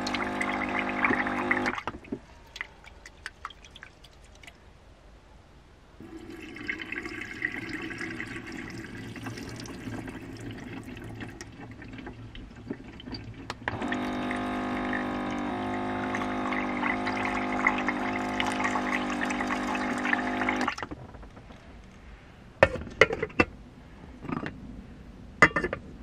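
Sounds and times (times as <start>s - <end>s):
water pouring into a steel sink: 0.0s - 1.9s, 2.5s - 4.6s, 6.0s - 20.9s
water dispenser pump whining: 0.0s - 3.9s, 6.0s - 20.9s.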